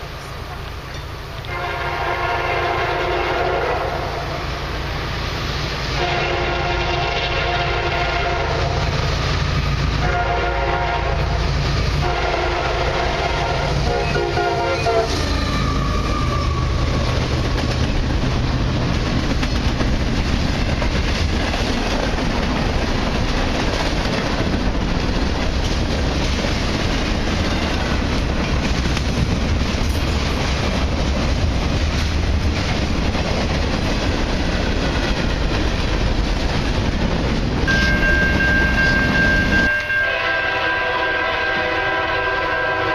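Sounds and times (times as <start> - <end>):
train rumbling past: 0.0 - 42.9
locomotive air horn blasts: 1.4 - 4.4, 6.0 - 8.8, 10.0 - 11.4, 12.0 - 16.8, 37.7 - 42.9.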